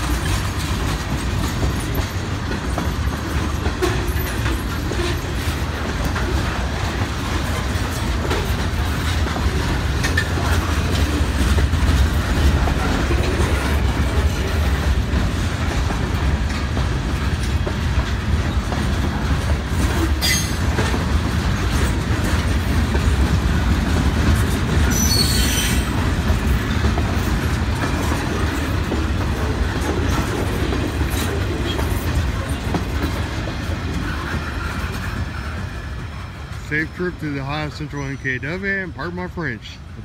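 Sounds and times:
freight train cars rumbling: 0.0s - 40.0s
high-pitched wheel squeals: 20.2s - 20.6s, 24.9s - 25.9s.

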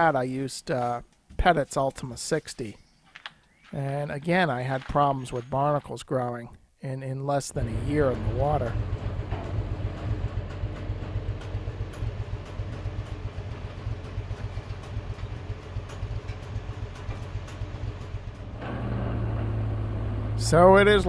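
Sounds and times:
engine running with uneven pulsing: 7.6s - 21.0s.

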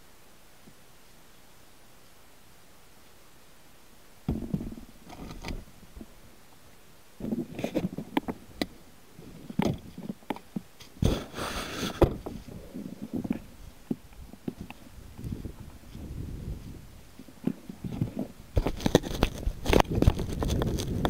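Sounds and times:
handling knocks and bumps: 4.3s - 6.2s.

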